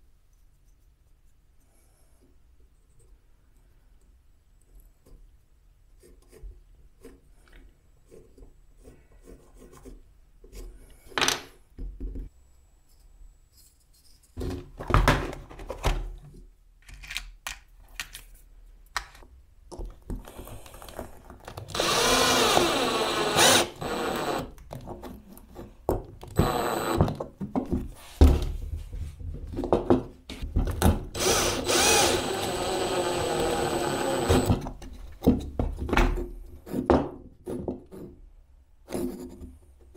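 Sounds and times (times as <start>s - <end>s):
power drill motor whine: 21.7s - 24.5s, 26.4s - 27.0s, 31.2s - 34.6s.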